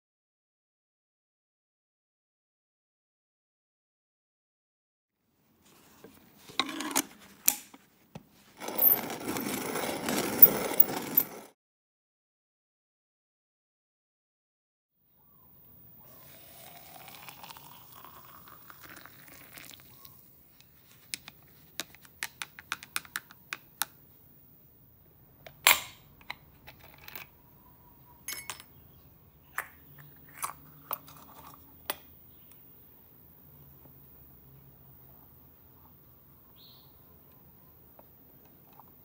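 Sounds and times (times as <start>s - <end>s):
hot water pouring into glass: 16.2s - 20.1s
metal lid clicks: 25.5s - 27.3s
metal spoon clinking on glass: 28.3s - 28.8s.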